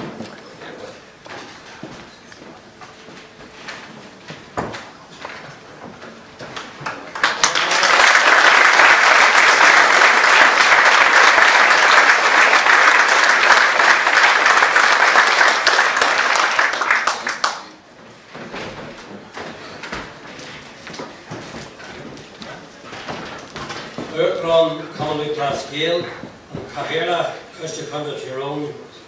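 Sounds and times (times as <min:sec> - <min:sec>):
audience applauding: 0:06.8 - 0:17.8.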